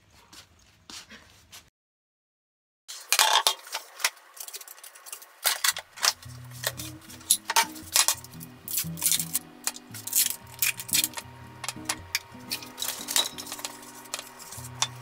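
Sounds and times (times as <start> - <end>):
plastic packaging rustling: 3.3 - 15.0
background music: 6.2 - 15.0.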